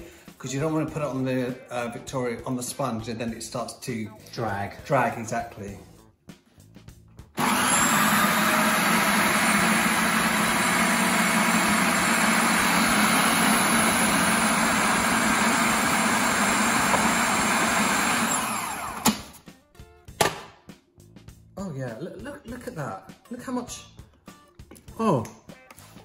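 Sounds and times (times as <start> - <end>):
food processor motor running: 7.4 - 19.4.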